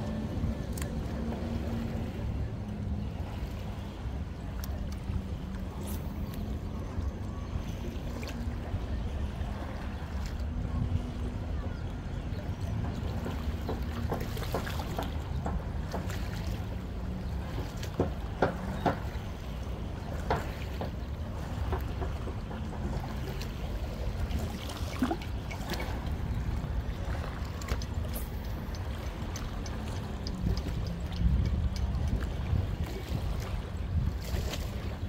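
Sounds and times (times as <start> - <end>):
low rumble of surf: 0.0 - 35.0
water sloshing among rocks: 0.0 - 35.0
wind: 0.0 - 35.0
short splashes and clicks: 0.6 - 3.7, 4.5 - 6.6, 12.5 - 35.0.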